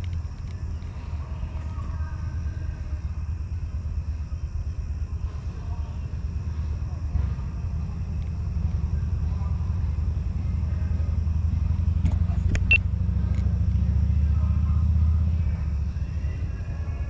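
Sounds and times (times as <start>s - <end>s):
brief clicks: 12.0s - 12.8s.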